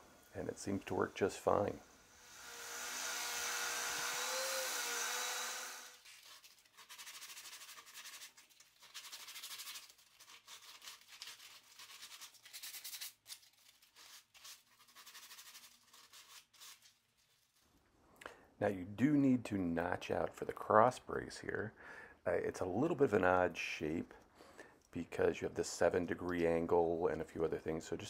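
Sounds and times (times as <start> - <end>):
oscillating sander humming: 2.2 - 6.0
sandpaper rubbing on wood: 6.0 - 13.1.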